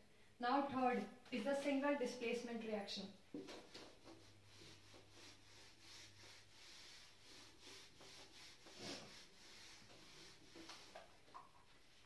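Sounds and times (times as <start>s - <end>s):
duster swishing on whiteboard: 3.3s - 12.0s.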